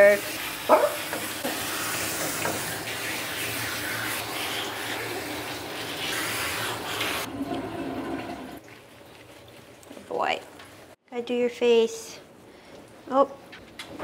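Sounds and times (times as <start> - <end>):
water spraying into tub: 0.0 - 10.3.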